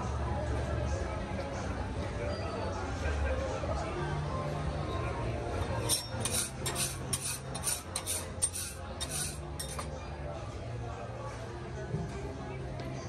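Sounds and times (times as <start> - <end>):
metal spatula scraping griddle: 5.8 - 9.9.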